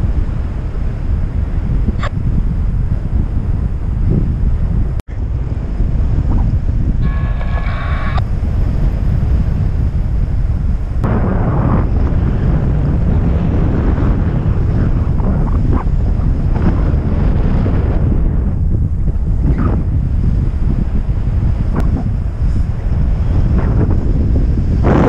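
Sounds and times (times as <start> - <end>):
wind buffeting microphone: 0.0 - 25.0
short electronic tone: 7.0 - 8.2.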